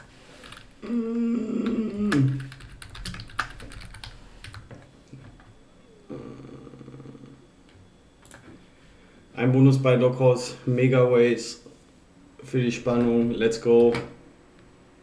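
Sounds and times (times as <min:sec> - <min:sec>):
drawn-out pitched hum: 0:00.0 - 0:15.0.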